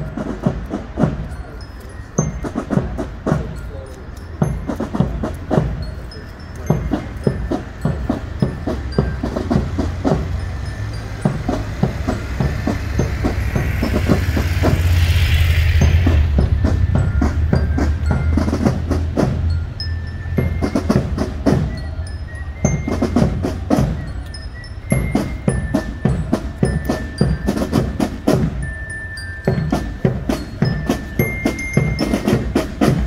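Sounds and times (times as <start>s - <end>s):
glockenspiel notes: 0.0s - 33.0s
marching band drums: 0.0s - 33.0s
low engine hum: 8.4s - 21.5s
motorcycle passing: 9.8s - 20.0s.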